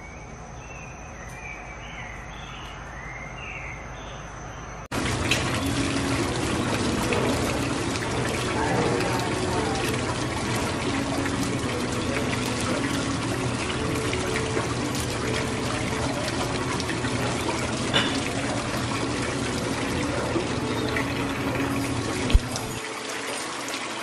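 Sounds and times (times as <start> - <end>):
water rushing and splashing: 4.9 - 24.0.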